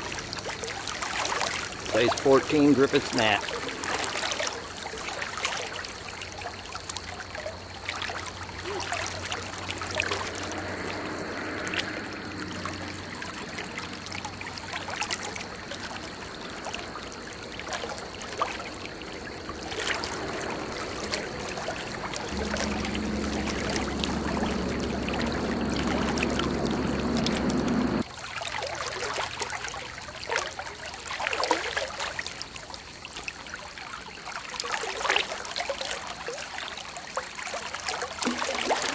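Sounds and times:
low steady hum: 17.3 - 28.0
river water rushing over rocks: 17.5 - 28.0.

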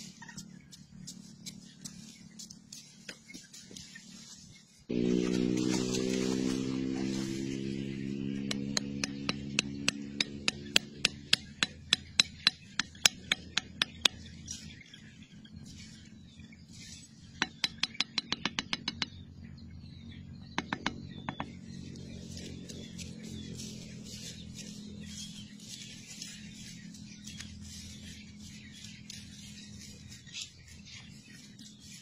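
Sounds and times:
machete tapping bamboo stake: 8.4 - 14.2.

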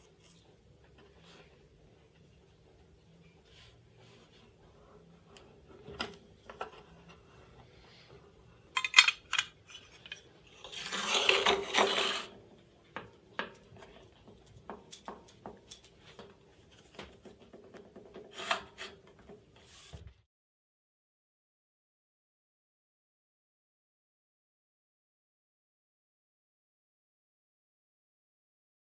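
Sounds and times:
metal scraping on metal: 5.8 - 12.5, 18.1 - 19.9.

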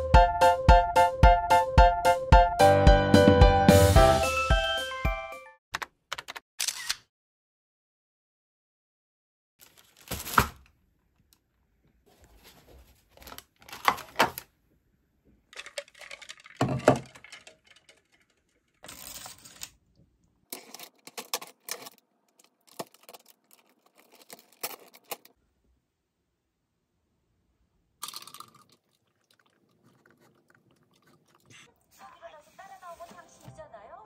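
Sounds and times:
paper wrapping rustling: 9.6 - 10.7, 12.1 - 14.5, 15.6 - 19.8, 20.5 - 25.3
plastic lid peeled open: 20.5 - 25.3.

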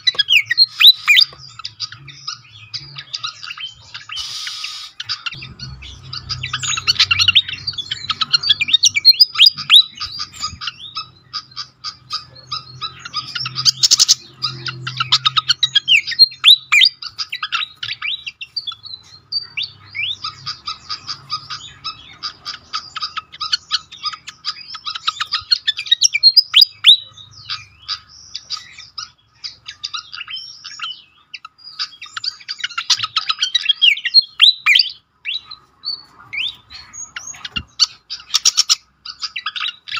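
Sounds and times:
bird chirping squeakily: 0.0 - 39.9.

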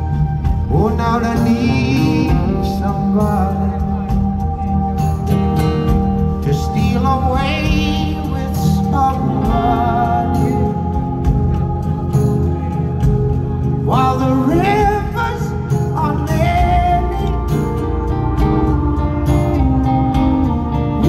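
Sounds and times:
live rock band playing: 0.0 - 21.0
man singing: 0.5 - 4.9, 6.2 - 13.0, 13.7 - 18.2.

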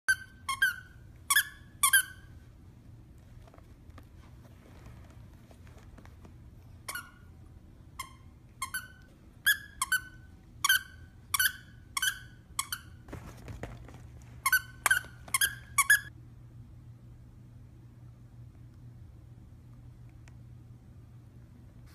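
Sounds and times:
squeaker toy squeaking: 0.1 - 2.3, 6.8 - 7.4, 8.0 - 13.0, 14.4 - 16.1.

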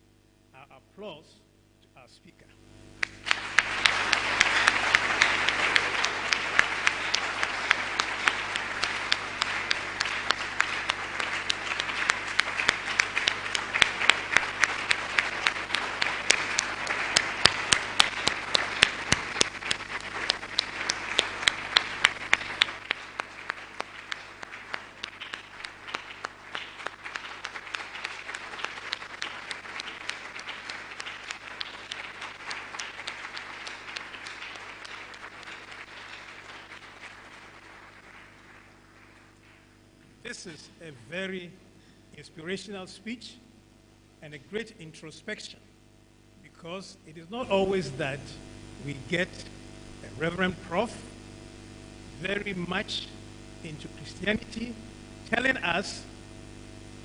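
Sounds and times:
sharp single claps: 3.0 - 39.7
large audience applauding: 3.0 - 40.6.

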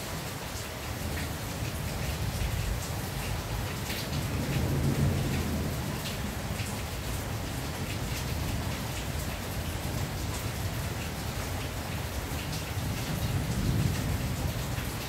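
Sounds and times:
rain on a tin roof: 0.0 - 15.0
thunder rumbling: 4.1 - 6.7.

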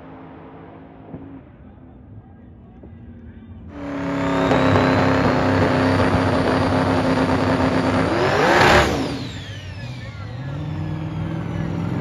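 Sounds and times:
turbo whine: 3.2 - 12.0
drag car engine revving: 3.7 - 12.0.

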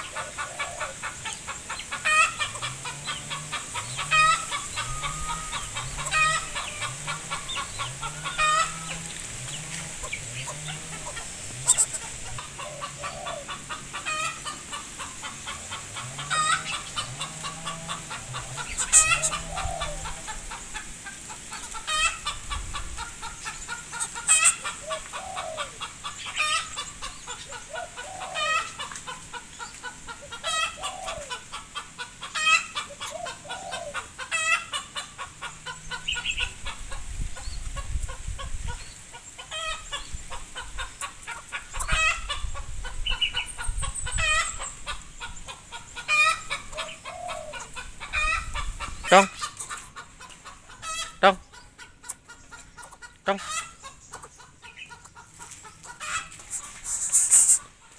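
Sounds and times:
chickens clucking: 0.0 - 57.9.

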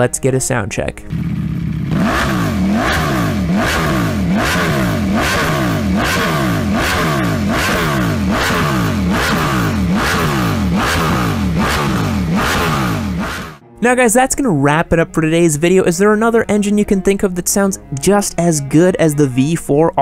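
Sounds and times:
motorcycle engine revving: 1.1 - 13.6.

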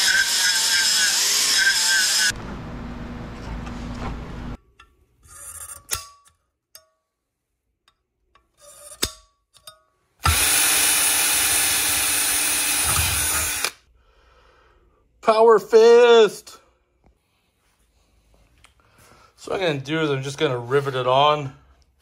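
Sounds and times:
drill whistling through metal: 0.0 - 2.3, 10.2 - 13.8
die grinder stopping: 0.0 - 4.6, 10.2 - 13.8.

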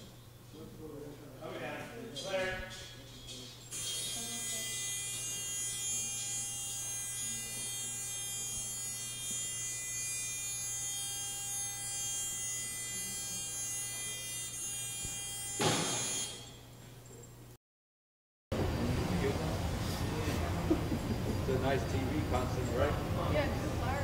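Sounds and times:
electric lift motor whining: 3.7 - 16.6
thump: 15.6 - 16.1.

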